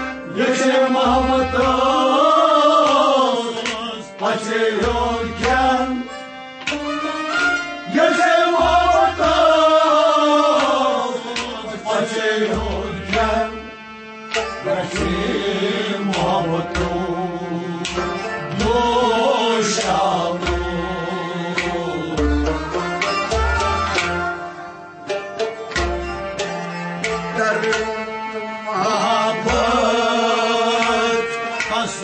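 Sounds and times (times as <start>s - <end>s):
plucked string instrument: 0.0s - 32.0s
man singing: 0.2s - 6.1s, 7.9s - 13.7s, 14.6s - 17.8s, 18.4s - 22.4s, 27.3s - 28.0s, 28.7s - 32.0s
hand drum beats: 14.3s - 15.4s, 25.1s - 28.0s.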